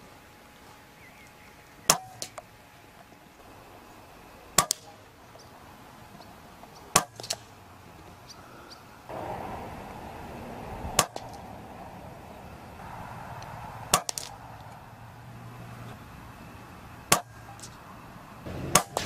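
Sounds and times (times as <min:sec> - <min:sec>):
rifle shots cracking: 0:13.9 - 0:14.4, 0:18.5 - 0:19.0.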